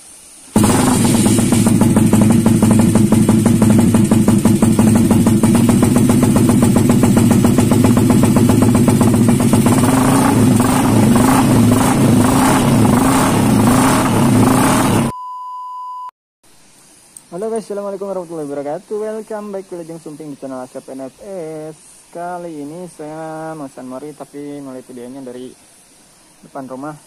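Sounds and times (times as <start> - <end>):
motorcycle engine revving: 0.5 - 15.1.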